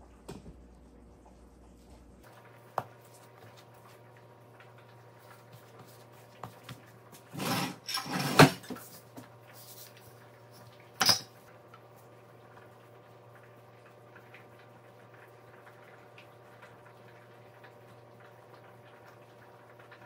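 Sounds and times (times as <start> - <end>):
kitchenware clattering and clanking: 7.3 - 8.9, 10.9 - 11.4.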